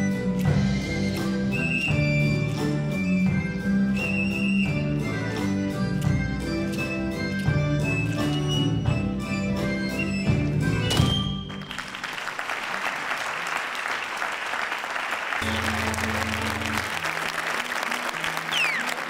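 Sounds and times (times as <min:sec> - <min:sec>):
falling whistle from crowd: 0:01.2 - 0:02.4, 0:03.0 - 0:04.9, 0:10.8 - 0:12.0, 0:18.5 - 0:19.0
audience applauding: 0:11.4 - 0:19.0.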